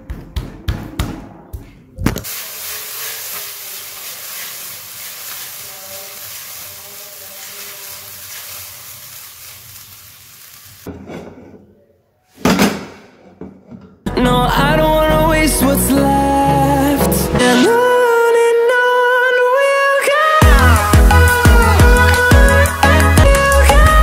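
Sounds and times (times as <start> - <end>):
food sizzling in a pan: 2.2 - 10.9.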